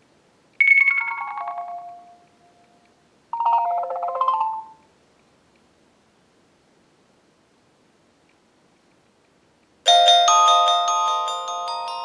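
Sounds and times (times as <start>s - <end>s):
descending ringtone chimes: 0.6s - 2.6s, 3.4s - 4.8s, 9.9s - 12.0s
mid-pitched ringtone tones: 0.6s - 2.6s, 3.4s - 4.8s.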